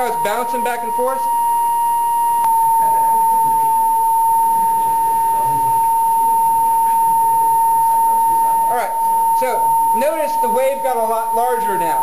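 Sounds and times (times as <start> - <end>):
high pure tone from loudspeaker: 0.0 - 1.6, 4.4 - 12.0
glass beaker resonating: 0.0 - 12.0.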